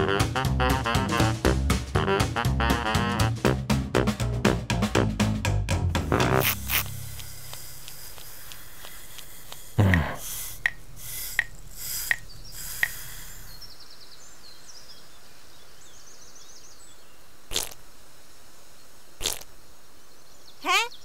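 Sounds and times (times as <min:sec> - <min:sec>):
brief puff: 0:06.1 - 0:13.6
faint bird chirps: 0:08.8 - 0:17.7, 0:18.7 - 0:21.0.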